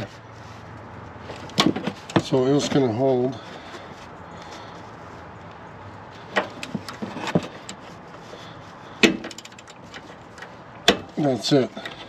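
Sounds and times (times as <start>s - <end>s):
metal clicks and knocks: 9.0s - 11.2s.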